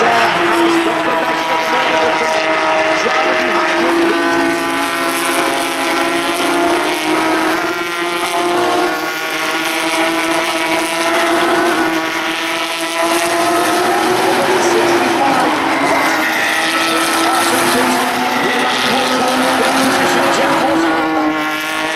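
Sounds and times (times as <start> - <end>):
race car engines at high revs: 0.0 - 21.9.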